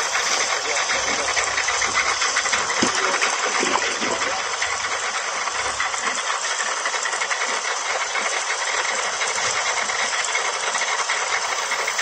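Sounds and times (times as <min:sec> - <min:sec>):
water hissing through injector: 0:00.0 - 0:04.7, 0:11.3 - 0:12.0.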